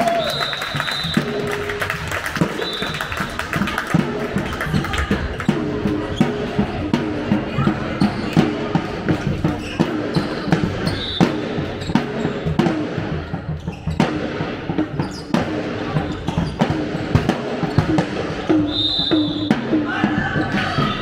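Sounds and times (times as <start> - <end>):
voices calling and chatting: 2.6 - 14.0, 19.7 - 21.0.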